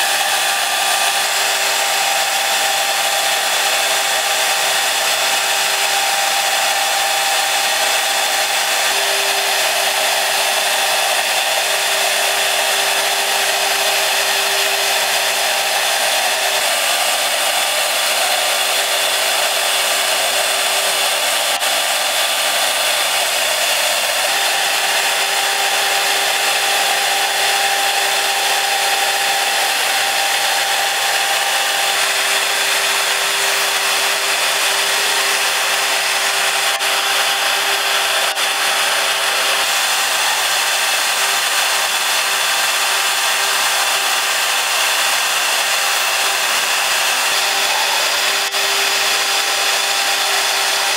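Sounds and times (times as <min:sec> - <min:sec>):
end mill cutting stone: 0:00.0 - 0:50.9
high-speed spindle whine: 0:00.0 - 0:50.9.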